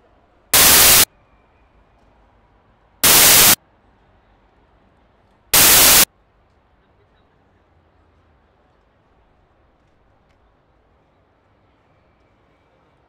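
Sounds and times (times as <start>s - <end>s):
white noise bursts: 0.6s - 1.1s, 3.0s - 3.6s, 5.6s - 6.1s
faint background hiss: 2.3s - 6.4s.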